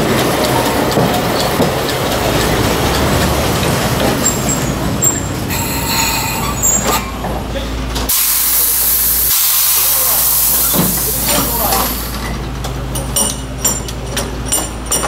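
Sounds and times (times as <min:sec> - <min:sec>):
engine and rail rumble: 0:00.0 - 0:15.0
brief high squeals: 0:05.0 - 0:07.2
loud steady hiss: 0:08.1 - 0:12.3.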